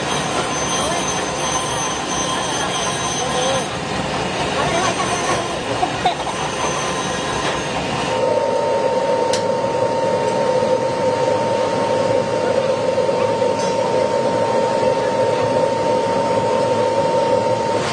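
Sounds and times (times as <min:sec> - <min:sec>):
workshop noise: 0:00.0 - 0:09.5
constant whine: 0:00.0 - 0:17.9.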